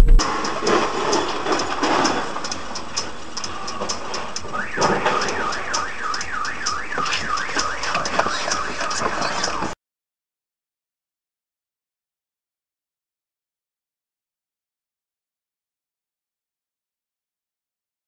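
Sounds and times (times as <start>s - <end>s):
steady fast ticking: 0.0s - 9.7s
car alarm warbling: 3.6s - 9.8s.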